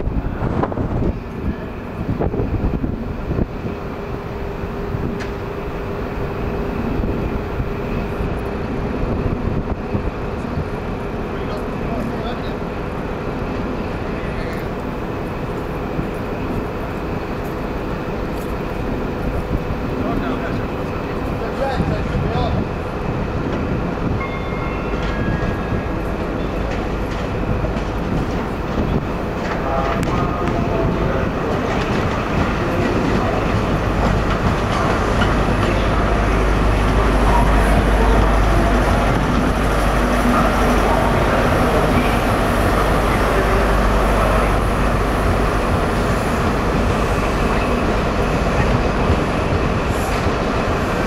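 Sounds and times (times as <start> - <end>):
diesel train engine rumbling: 0.0 - 51.0
diesel engine running: 32.5 - 50.1.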